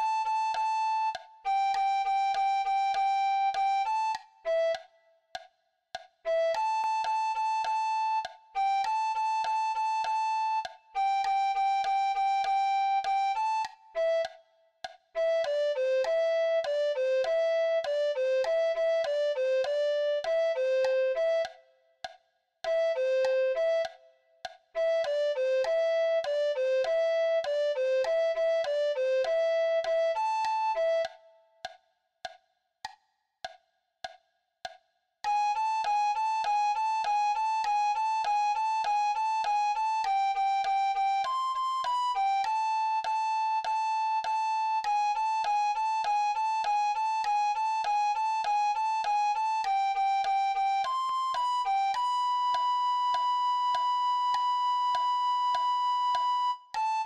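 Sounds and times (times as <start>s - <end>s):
recorder melody: 0.0s - 4.8s, 6.4s - 14.3s, 24.8s - 31.4s, 35.3s - 57.0s
sharp metronome ticks: 0.0s - 57.0s.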